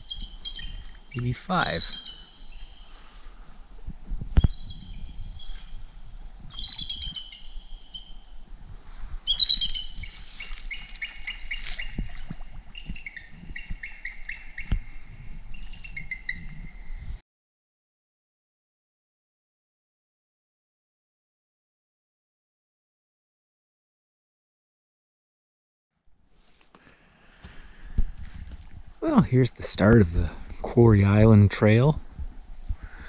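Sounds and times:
eagles calling: 0.0 - 3.6, 4.4 - 8.4, 9.2 - 17.0.

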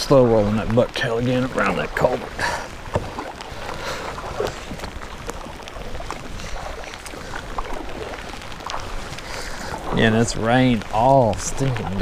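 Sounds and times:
paddle strokes splashing: 0.0 - 12.0
raindrop taps: 0.0 - 12.0
rainfall hiss: 0.0 - 12.0.

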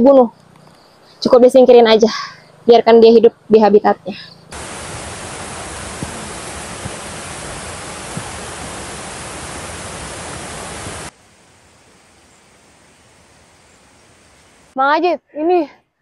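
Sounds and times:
faint hiss: 0.0 - 15.9
stream water rushing: 4.5 - 14.8.

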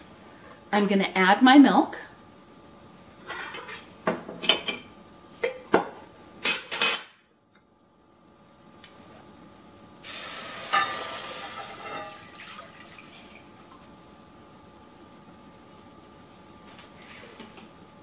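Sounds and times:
milk sizzling in hot pan: 10.0 - 13.6.

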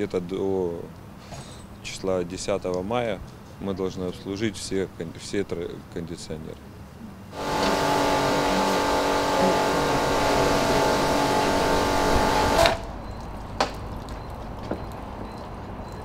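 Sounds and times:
pressure washer jet hissing: 7.4 - 12.9
pump humming: 7.4 - 13.0.

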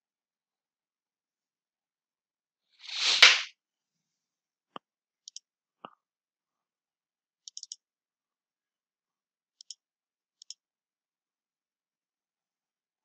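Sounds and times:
sharp click: 2.9 - 3.5, 7.5 - 7.8
computer mouse clicks: 5.2 - 5.4, 7.4 - 7.8, 9.6 - 9.8, 10.4 - 10.6.

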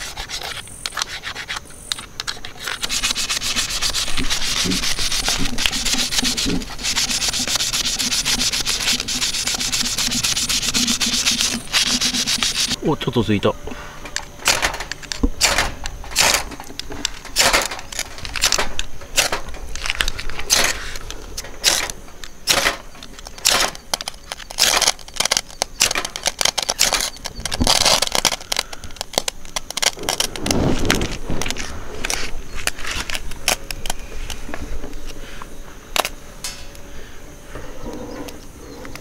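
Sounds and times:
striker rasping on fire-starter rod: 0.0 - 12.8.

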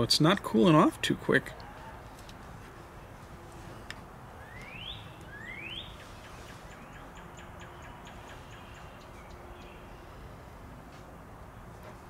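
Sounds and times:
bird rising whistle: 4.4 - 6.0.

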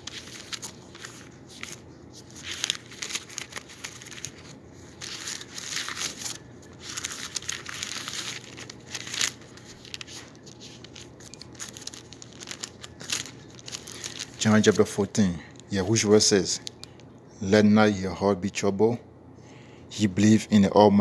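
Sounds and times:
pages rustling: 0.0 - 15.7.

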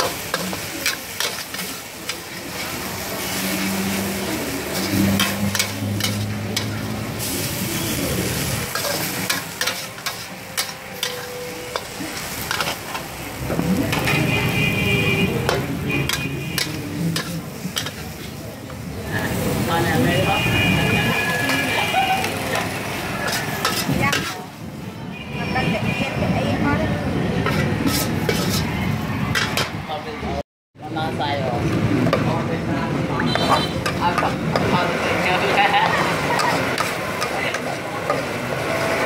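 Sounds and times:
metal ladle scraping a wok: 0.0 - 14.2, 15.4 - 18.4, 20.8 - 24.6, 27.4 - 29.7
noodles sizzling in a wok: 0.0 - 24.9, 33.8 - 39.0.

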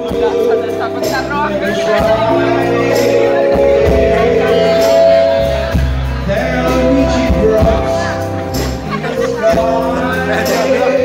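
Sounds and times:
live band music: 0.0 - 11.0
man singing into a microphone: 0.0 - 11.0
steady bass line: 0.0 - 11.0.

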